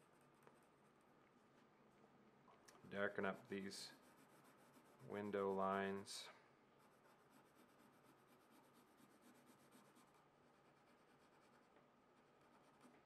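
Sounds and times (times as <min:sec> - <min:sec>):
pencil scratching on paper: 0:03.4 - 0:05.6, 0:06.8 - 0:13.0.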